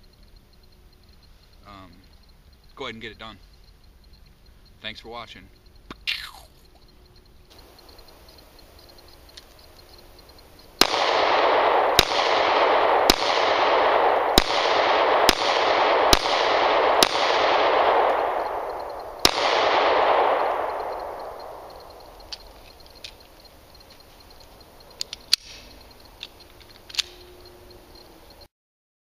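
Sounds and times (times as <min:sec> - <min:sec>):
pistol shots with long echo: 0:10.8 - 0:22.2.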